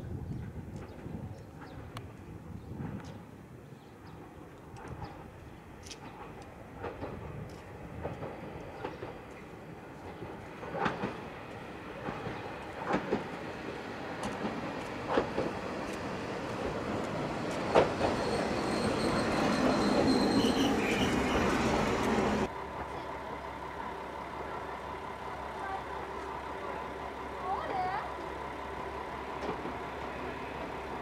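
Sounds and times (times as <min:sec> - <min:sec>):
diesel railcar engine: 0:00.0 - 0:31.0
train wheels clacking over rail joints: 0:04.7 - 0:18.4.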